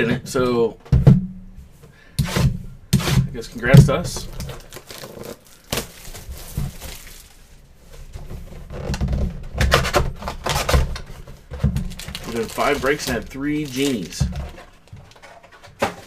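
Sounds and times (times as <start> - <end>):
plastic wrap rustling: 3.5 - 16.0.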